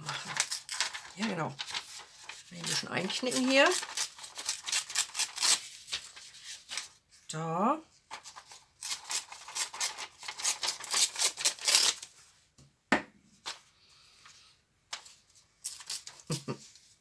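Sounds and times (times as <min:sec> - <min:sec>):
paper rustling and crinkling: 0:00.0 - 0:07.1, 0:08.1 - 0:12.3, 0:14.9 - 0:17.0.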